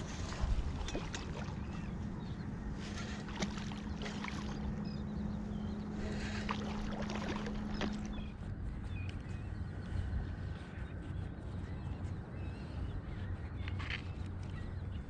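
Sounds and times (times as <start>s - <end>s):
wind noise: 0.0s - 4.4s
steady low hum: 0.0s - 15.0s.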